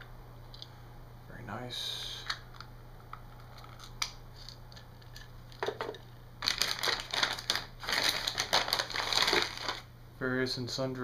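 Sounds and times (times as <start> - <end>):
plastic bag crinkling: 3.5 - 9.9.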